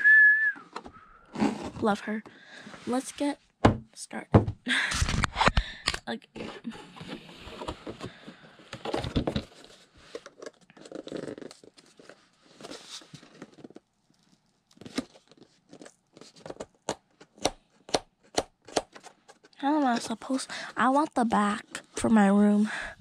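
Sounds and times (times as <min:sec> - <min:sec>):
packaging tearing and crinkling: 0:10.2 - 0:16.9.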